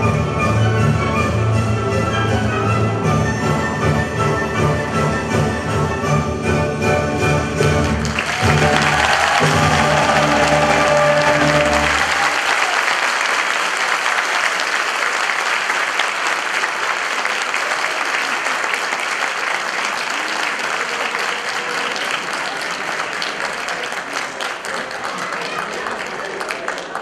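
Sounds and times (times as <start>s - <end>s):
audience applauding: 7.7s - 27.0s
dance music: 7.8s - 12.0s.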